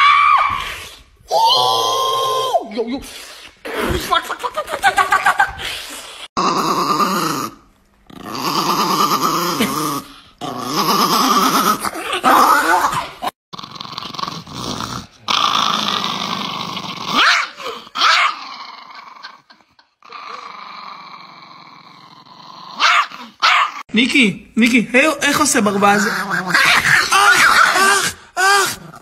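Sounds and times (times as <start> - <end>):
small dogs growling: 5.6 - 23.9.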